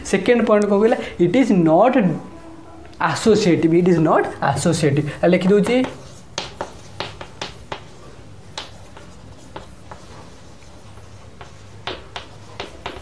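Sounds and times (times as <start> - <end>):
pen tapping while writing: 5.4 - 13.0.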